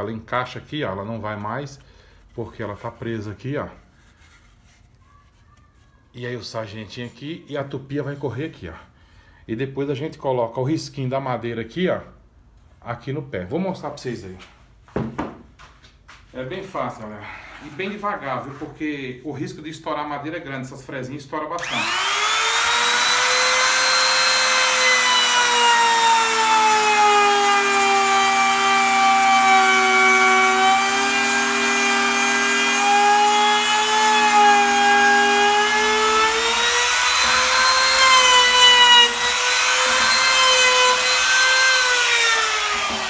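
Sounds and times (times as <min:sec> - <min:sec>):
router cutting into wood: 0:21.6 - 0:43.0.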